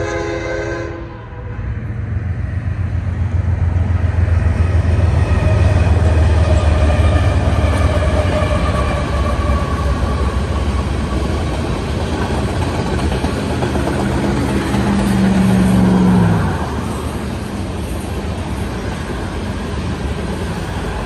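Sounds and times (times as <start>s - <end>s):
diesel locomotive rumble: 0.0s - 21.0s
freight cars rolling on rails: 1.6s - 21.0s.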